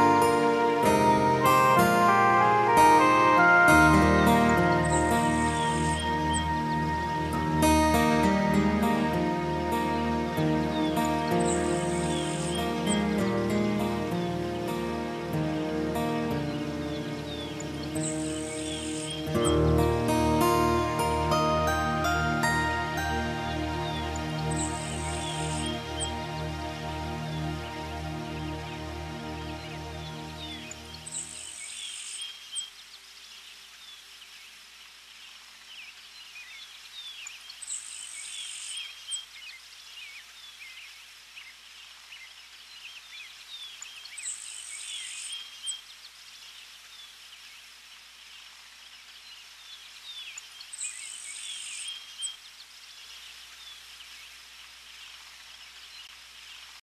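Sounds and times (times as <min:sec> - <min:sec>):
soft instrumental music: 0:00.0 - 0:31.5
faint steady hiss: 0:00.0 - 0:56.8
bird chirps: 0:04.2 - 0:07.4, 0:10.7 - 0:13.2, 0:16.2 - 0:19.6, 0:21.4 - 0:26.5, 0:29.5 - 0:33.0, 0:35.8 - 0:46.2, 0:49.6 - 0:54.4.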